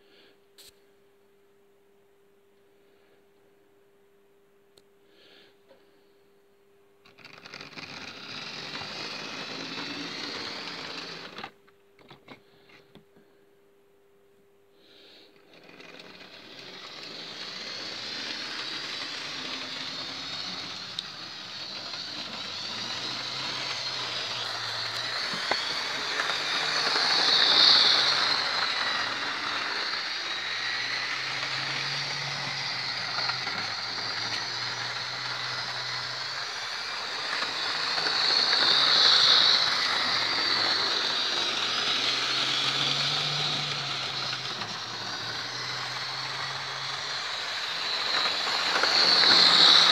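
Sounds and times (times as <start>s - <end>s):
model train motor whirr: 7.0s - 11.6s, 14.9s - 49.9s
wheels rattling on rails: 15.6s - 49.9s.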